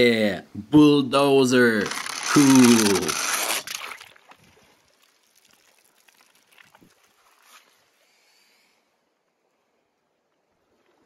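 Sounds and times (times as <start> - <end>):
toy splashing into water: 1.8 - 7.0
soft splashes and drips: 3.7 - 8.2.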